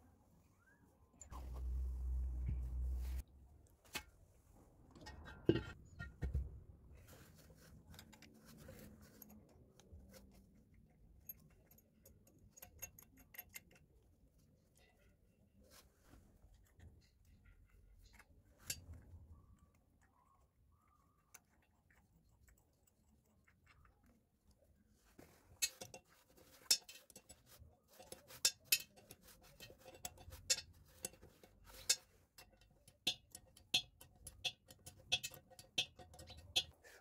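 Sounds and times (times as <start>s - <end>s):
metal fittings clicking and tapping: 11.2s - 14.1s, 25.5s - 37.0s.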